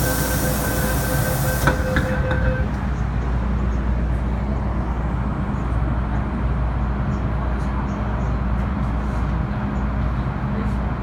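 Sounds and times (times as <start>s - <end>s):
air hiss: 0.0s - 2.2s
train clunk: 0.0s - 3.7s
train running rumble: 0.0s - 11.0s.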